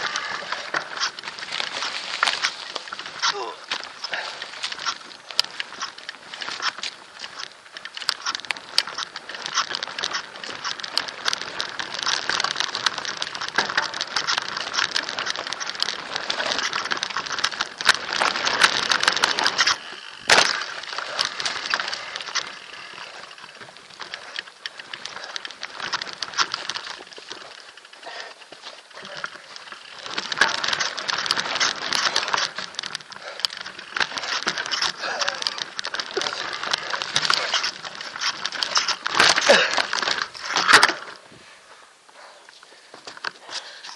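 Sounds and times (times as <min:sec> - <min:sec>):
bike rattling on rough trail: 0:00.0 - 0:43.9.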